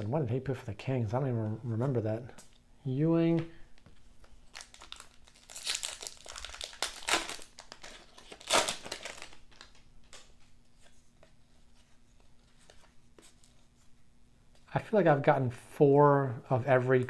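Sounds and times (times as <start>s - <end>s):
cards being handled: 3.3s - 14.0s
card pack wrapper crinkling and tearing: 4.4s - 10.5s.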